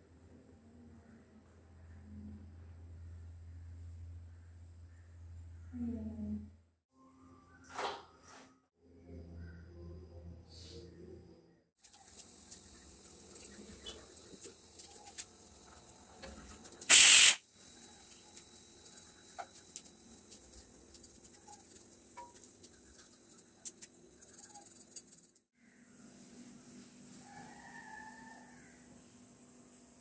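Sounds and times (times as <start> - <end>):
loud burst of noise: 16.9 - 17.4.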